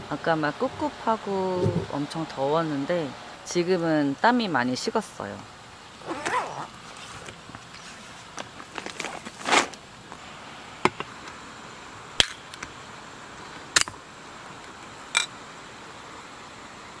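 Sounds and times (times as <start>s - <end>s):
faint steady hiss: 0.0s - 17.0s.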